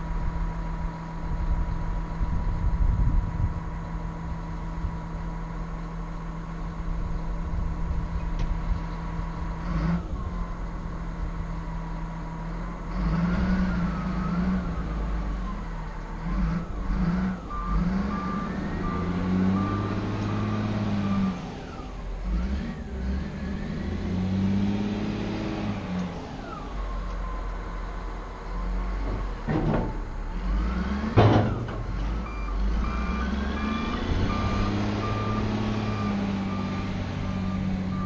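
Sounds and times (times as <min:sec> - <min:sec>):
wheel loader diesel engine revving: 0:00.0 - 0:38.0
reversing alarm beeping: 0:17.4 - 0:21.5, 0:32.2 - 0:38.0.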